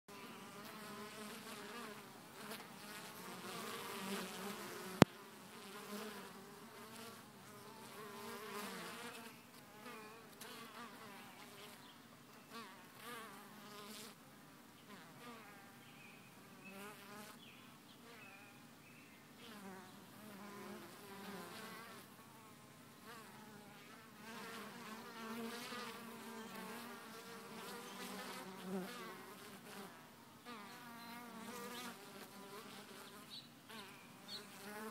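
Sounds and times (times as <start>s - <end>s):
honeybees buzzing: 0.1s - 11.8s, 23.1s - 29.9s, 30.5s - 34.9s.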